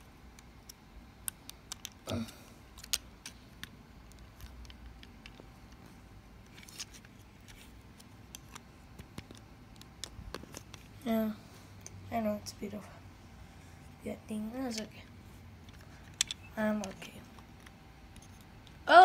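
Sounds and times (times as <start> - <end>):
plastic parts clicking: 0.3 - 2.1, 2.7 - 5.8, 15.6 - 18.8.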